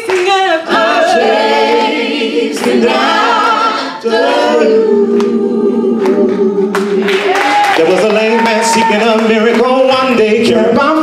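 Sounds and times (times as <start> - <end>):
vocal group singing in harmony: 0.0 - 7.7, 10.1 - 11.0.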